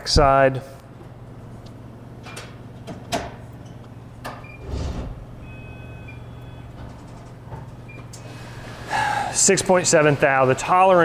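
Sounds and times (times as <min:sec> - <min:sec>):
low hum: 0:03.5 - 0:08.8
short scraping slide: 0:04.6 - 0:05.2
short electronic beeps: 0:05.4 - 0:06.7.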